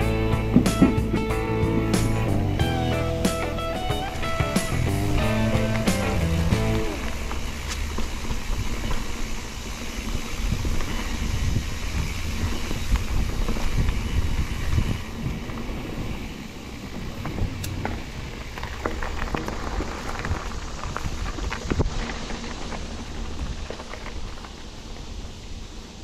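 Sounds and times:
bike clicks and knocks: 0:00.0 - 0:25.6
tyre and trail rumble: 0:00.0 - 0:26.0
wind buffeting microphone: 0:00.0 - 0:26.0.

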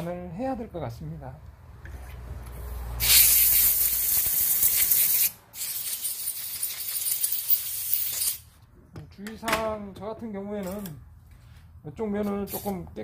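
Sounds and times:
compressed air hissing from blow gun: 0:03.0 - 0:08.4.

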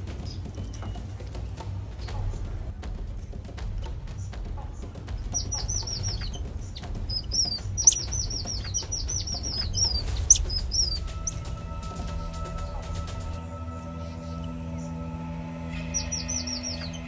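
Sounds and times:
soft background music: 0:00.0 - 0:17.0
high-pitched animal chirps: 0:05.3 - 0:11.5, 0:15.7 - 0:17.0.

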